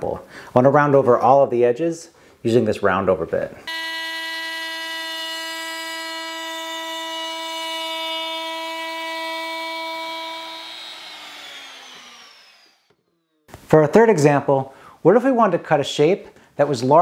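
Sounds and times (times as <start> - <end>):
router high-pitched whine: 3.7 - 13.4.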